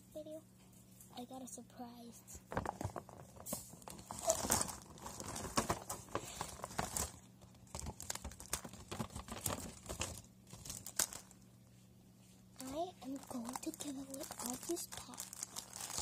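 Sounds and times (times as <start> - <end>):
plastic rustling and crinkling: 2.4 - 11.5, 12.2 - 16.0.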